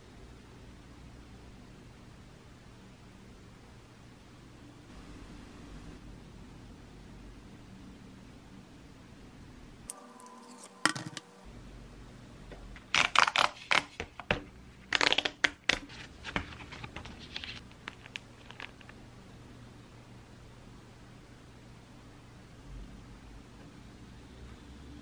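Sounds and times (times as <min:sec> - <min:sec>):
packaging rustling: 0:12.8 - 0:19.0.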